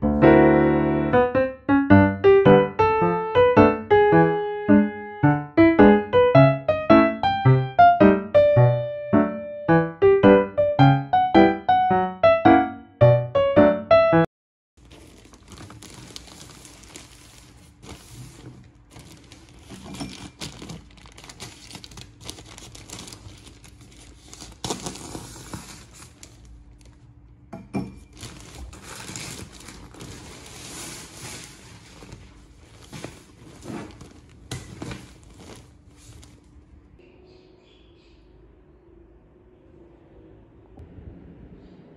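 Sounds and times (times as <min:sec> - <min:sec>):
plastic bag tearing and crinkling: 0:14.8 - 0:27.1, 0:28.1 - 0:36.5
plastic wrap rustling: 0:14.8 - 0:27.2, 0:28.0 - 0:36.7.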